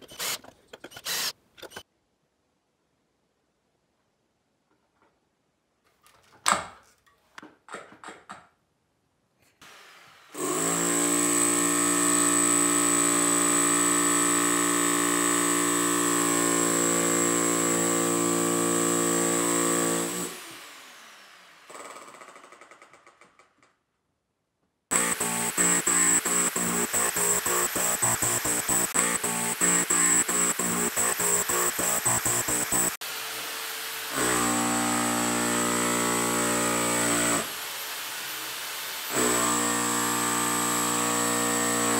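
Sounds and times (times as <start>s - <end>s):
drill winding down whine: 1.0s - 1.3s, 10.4s - 22.6s, 24.9s - 41.9s
electric drill running: 1.0s - 1.3s, 24.9s - 41.9s.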